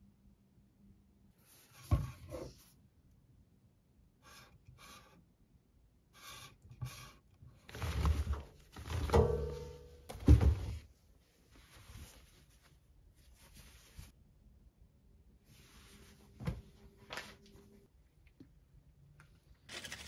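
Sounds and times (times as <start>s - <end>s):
household objects thudding and knocking: 8.0s - 10.9s.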